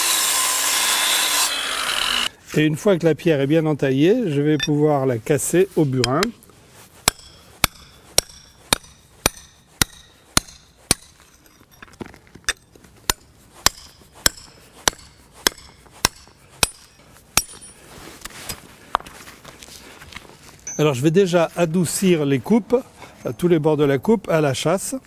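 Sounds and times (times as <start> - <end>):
hammer striking chisel: 7.0 - 11.2, 11.8 - 17.8.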